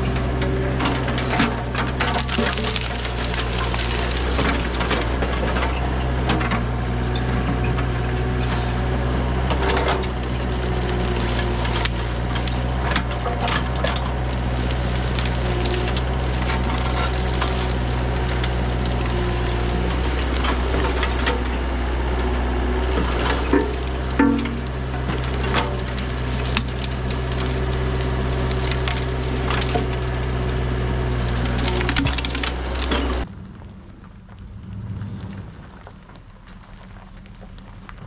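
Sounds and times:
excavator diesel engine running: 0.0s - 38.0s
branches cracking and snapping: 1.0s - 6.3s, 9.3s - 38.0s.

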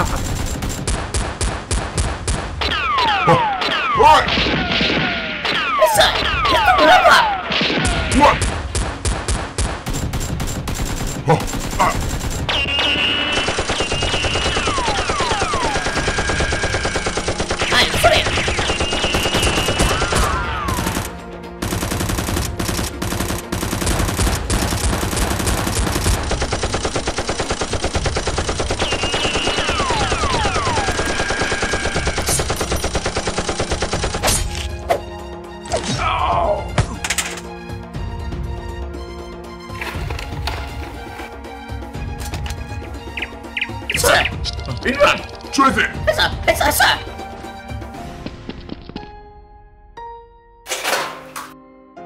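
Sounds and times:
rapid automatic gunfire: 0.0s - 2.4s, 8.7s - 34.3s.

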